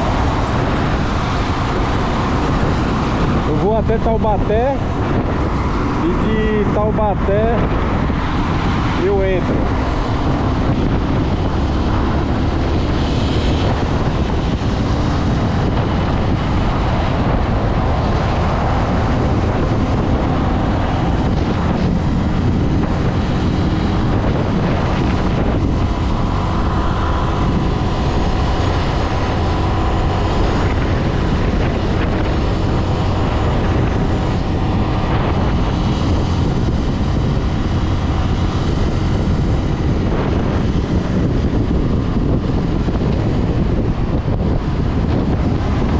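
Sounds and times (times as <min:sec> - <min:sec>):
motorcycle engine cruising: 0:00.0 - 0:45.9
tyre and road noise: 0:00.0 - 0:45.9
wind rush over microphone: 0:00.0 - 0:45.9.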